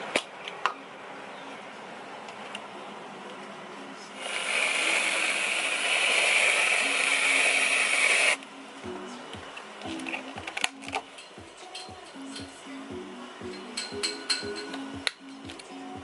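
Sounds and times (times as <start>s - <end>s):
whipped cream dispenser hissing: 4.2s - 8.4s.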